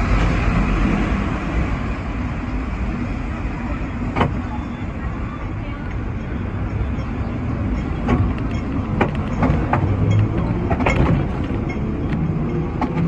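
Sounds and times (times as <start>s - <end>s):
tram rumbling: 0.0s - 13.0s
wheels clacking over rails: 5.8s - 13.0s.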